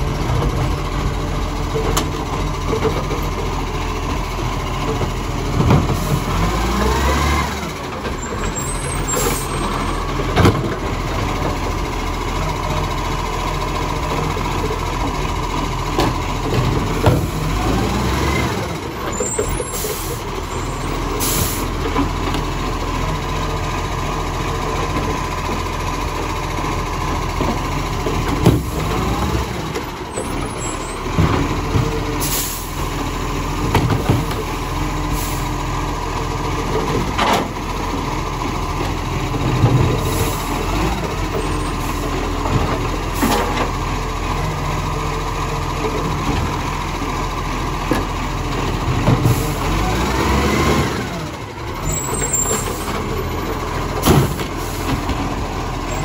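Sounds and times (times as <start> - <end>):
diesel engine revving: 0.0 - 56.0
air brake hiss: 21.2 - 21.7, 32.2 - 32.8.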